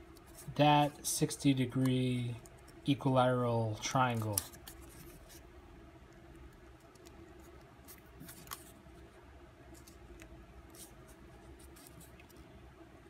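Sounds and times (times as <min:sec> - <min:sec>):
paper crinkling: 0:06.8 - 0:08.8, 0:09.7 - 0:12.5.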